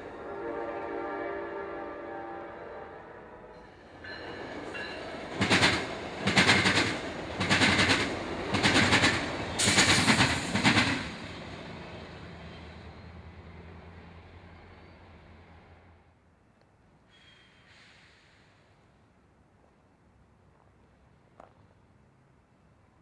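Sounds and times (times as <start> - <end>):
train horn: 0.0 - 3.9
train rumble: 0.0 - 16.1
train wheels banging over crossing: 4.0 - 11.1.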